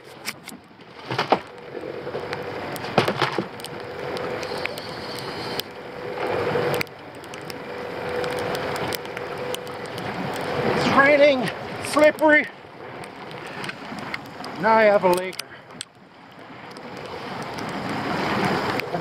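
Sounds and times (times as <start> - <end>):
rough water rushing: 0.0 - 19.0
wind: 0.0 - 19.0
steady hum: 1.4 - 14.8.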